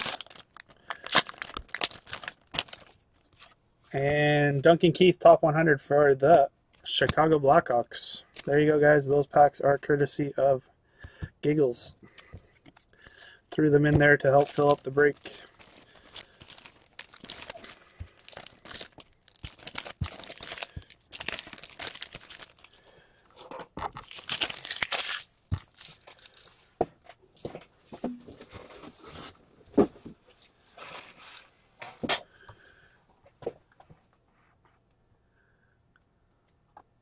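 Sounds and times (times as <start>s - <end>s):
foil wrappers crinkling: 0.0s - 3.6s, 14.1s - 23.0s, 24.0s - 26.7s.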